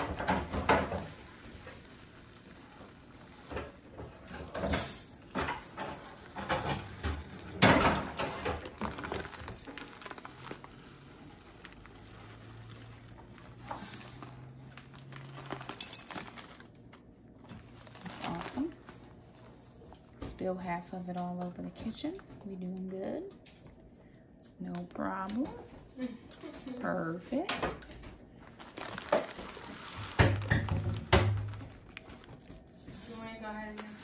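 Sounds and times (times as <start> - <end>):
rice pattering into metal pot: 0.0 - 16.7, 28.6 - 33.1.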